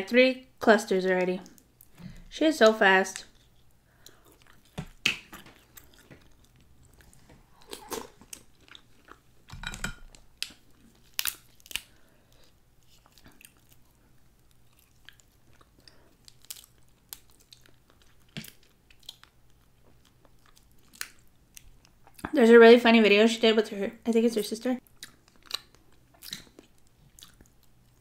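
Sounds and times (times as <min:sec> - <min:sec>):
crab shells cracking: 0:07.6 - 0:22.2, 0:24.9 - 0:27.8.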